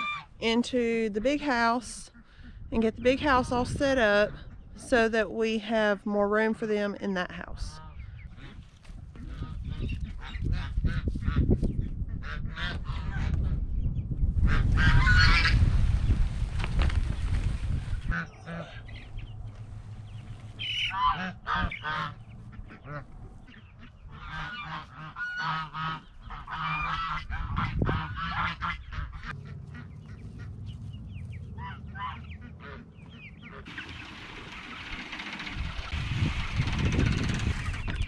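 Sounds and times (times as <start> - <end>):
geese honking: 0.0 - 0.4, 14.4 - 15.6, 18.0 - 35.4.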